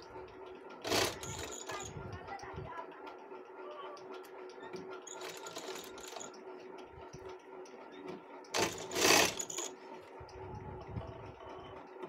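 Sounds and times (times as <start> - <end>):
sewing machine running: 0.8 - 2.0, 5.0 - 6.5, 8.5 - 10.1.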